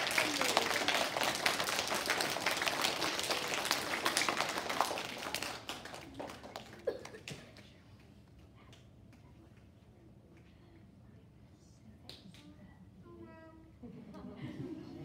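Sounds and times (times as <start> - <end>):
children clapping: 0.0 - 7.8.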